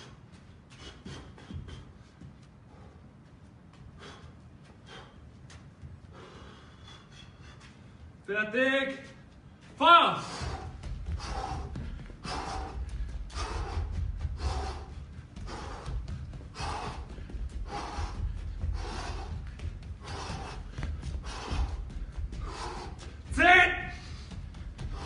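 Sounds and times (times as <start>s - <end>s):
man breathing hard: 0.0s - 8.2s, 9.4s - 23.3s, 23.9s - 25.0s
steady low rumble: 9.0s - 25.0s.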